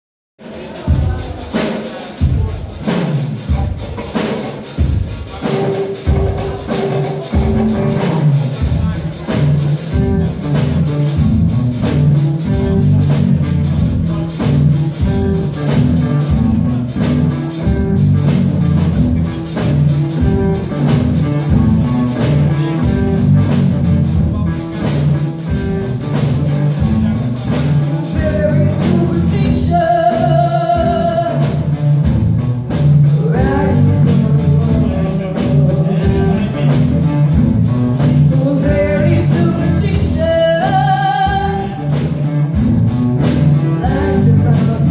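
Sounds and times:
live rock band playing: 0.4 - 44.9
woman singing lead: 28.0 - 31.9, 33.1 - 35.9, 38.3 - 42.0, 43.7 - 44.9.

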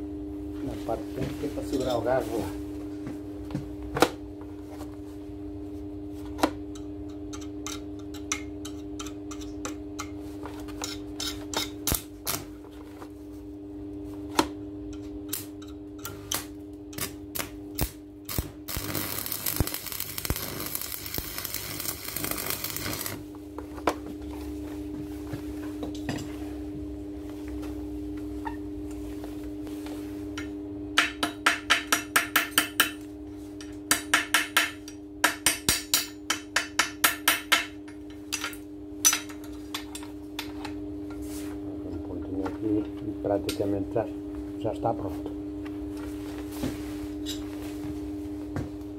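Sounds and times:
welding arc crackling and hissing: 16.3 - 23.3.

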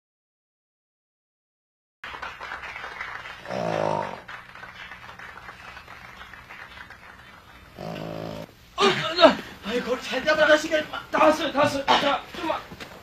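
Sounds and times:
person groaning: 3.5 - 4.2.

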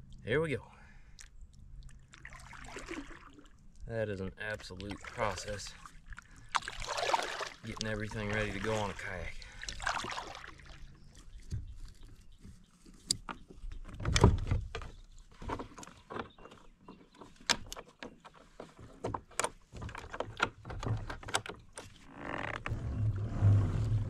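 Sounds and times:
hard plastic knocks and rattles: 13.2 - 22.0.

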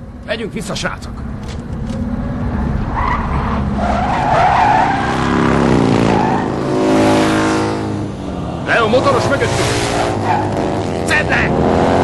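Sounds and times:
car tyres squealing: 2.9 - 7.9, 8.6 - 10.8
motorcycle engine revving: 5.1 - 12.0.

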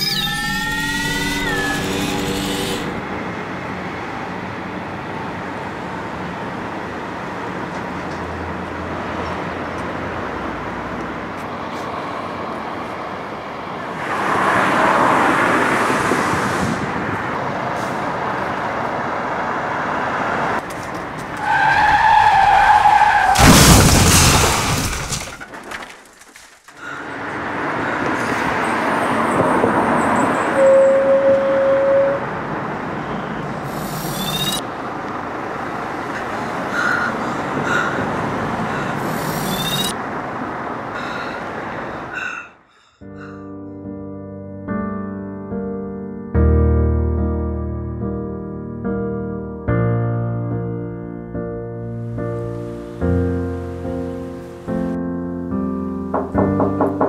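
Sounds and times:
car traffic passing: 1.8 - 25.9, 26.8 - 43.5, 51.8 - 57.0
car impact: 23.3 - 26.7
car horn: 30.3 - 32.4.

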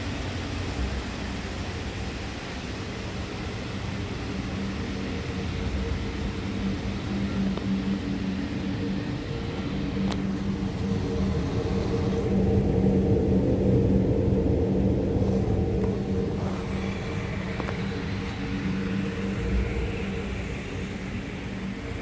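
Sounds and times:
car engine idling: 3.1 - 22.0.

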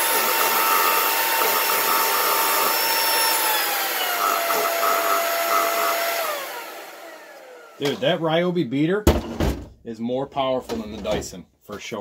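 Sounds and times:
vacuum motor whine: 0.0 - 7.9.

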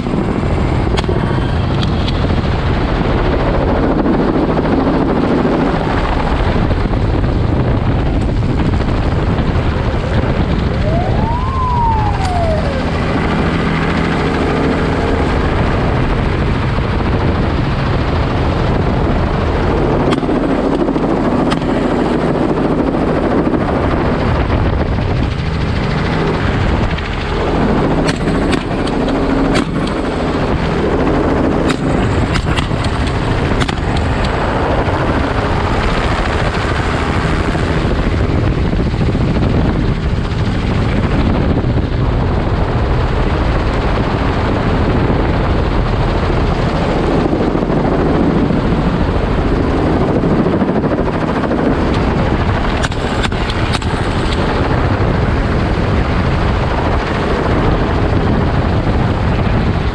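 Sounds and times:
helicopter rotor and engine: 0.0 - 59.9
rushing wind: 0.0 - 59.9.

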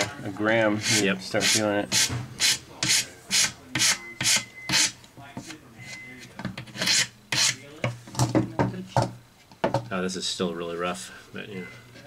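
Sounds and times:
hand file rasping: 0.8 - 4.9, 6.8 - 7.6.

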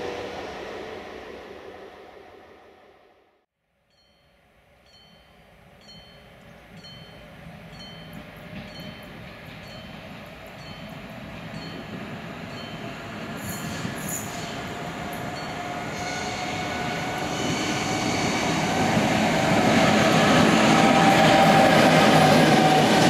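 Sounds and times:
train rumble: 4.8 - 23.0.

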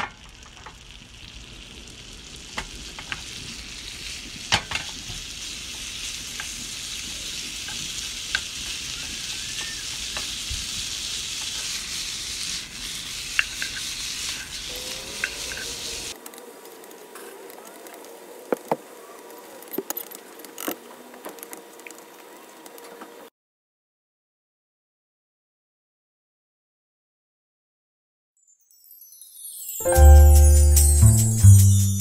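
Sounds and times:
meat sizzling in a frying pan: 0.0 - 16.2.

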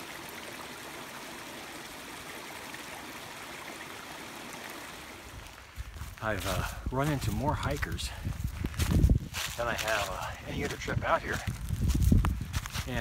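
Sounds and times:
stream babbling over rocks: 0.0 - 8.1.

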